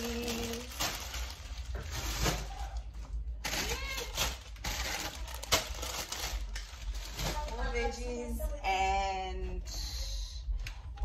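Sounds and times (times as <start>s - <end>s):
plastic packets crinkling: 0.0s - 8.0s.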